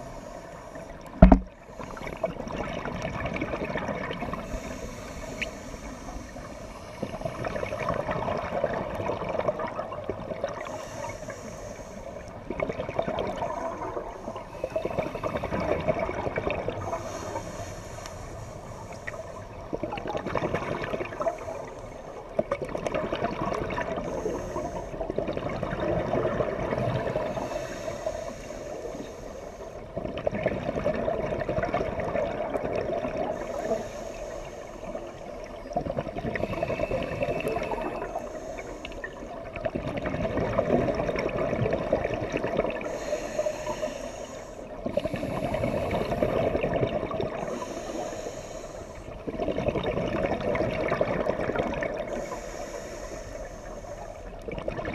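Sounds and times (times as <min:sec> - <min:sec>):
gurgling exhaled bubbles: 0:01.0 - 0:04.7, 0:07.0 - 0:10.8, 0:12.4 - 0:17.0, 0:19.0 - 0:21.7, 0:22.3 - 0:27.5, 0:29.9 - 0:33.8, 0:35.0 - 0:43.8, 0:44.8 - 0:48.0, 0:49.1 - 0:52.4, 0:54.3 - 0:54.9
hissing regulator inhalations: 0:04.3 - 0:07.3, 0:10.6 - 0:12.4, 0:16.8 - 0:19.4, 0:24.0 - 0:25.1, 0:27.2 - 0:29.9, 0:33.3 - 0:35.7, 0:36.3 - 0:39.6, 0:42.8 - 0:46.6, 0:47.3 - 0:49.2, 0:52.0 - 0:54.5.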